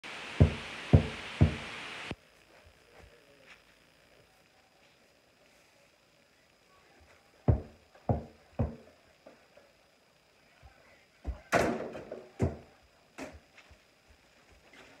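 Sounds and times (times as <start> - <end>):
basketball bouncing: 0.4 - 1.6, 7.5 - 8.8.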